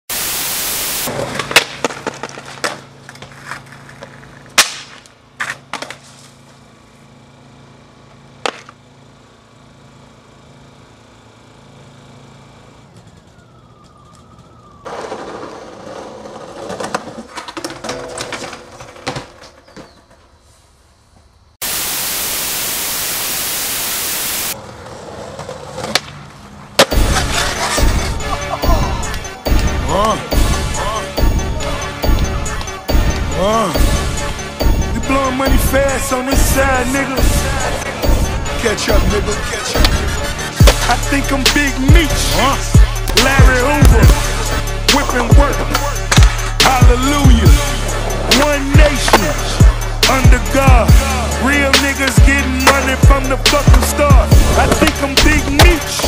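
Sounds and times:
tv static hiss: 0.1 - 1.1, 21.6 - 24.6
skateboard clacks on concrete: 1.1 - 6.1, 8.4 - 8.8, 14.9 - 20.2, 24.8 - 26.9.

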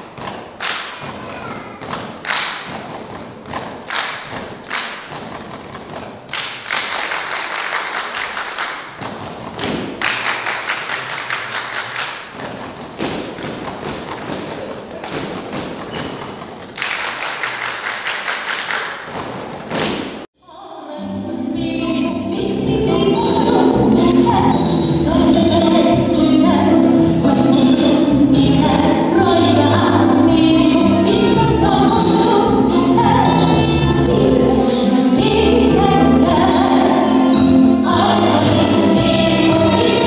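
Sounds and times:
rhythmic hand clapping: 0.0 - 20.3
foot stomping: 8.9 - 10.2, 12.2 - 16.8, 19.0 - 20.3
recorded music: 20.4 - 40.0.

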